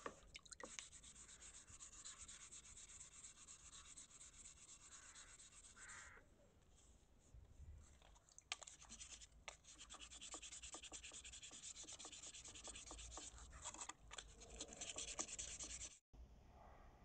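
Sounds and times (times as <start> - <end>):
sandpaper rubbing on wood: 0.7 - 5.8, 8.9 - 16.0.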